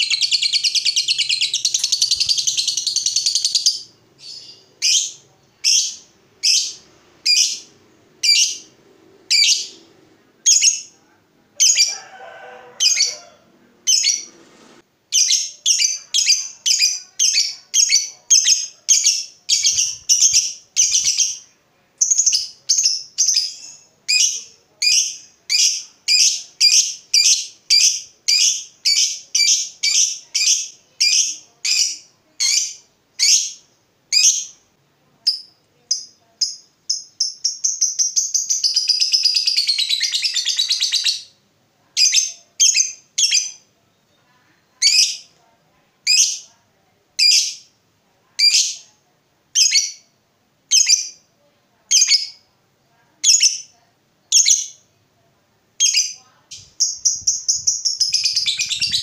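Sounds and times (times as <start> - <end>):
bird chattering: 0.0 - 8.7, 55.8 - 59.0
high bird chirps: 0.0 - 8.7, 9.3 - 9.9, 15.2 - 21.4, 35.3 - 41.4, 55.8 - 59.0.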